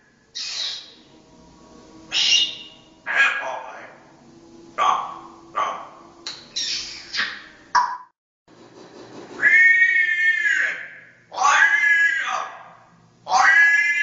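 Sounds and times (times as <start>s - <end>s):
parrot calling loudly: 0.3s - 1.0s, 2.1s - 3.9s, 6.6s - 7.5s, 9.4s - 14.0s.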